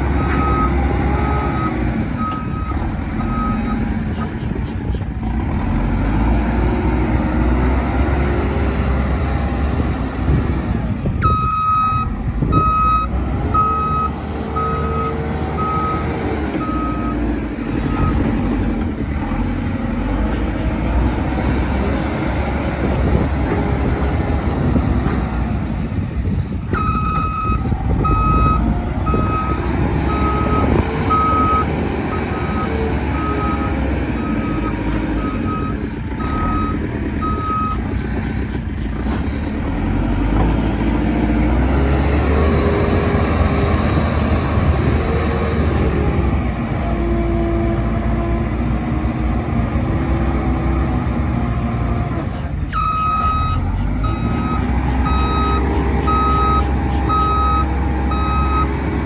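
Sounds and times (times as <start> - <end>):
diesel engine revving: 0.0 - 59.0
reversing alarm beeping: 26.8 - 37.8, 52.8 - 58.8.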